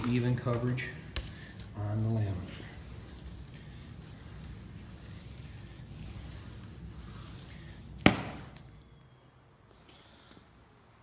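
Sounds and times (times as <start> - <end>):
paint roller rubbing: 0.0 - 8.8.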